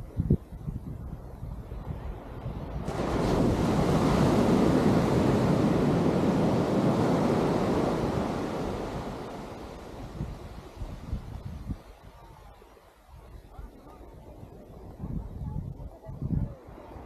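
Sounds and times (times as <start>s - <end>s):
wind rumbling on microphone: 0.0s - 17.0s
surf breaking on sand beach: 1.7s - 12.2s.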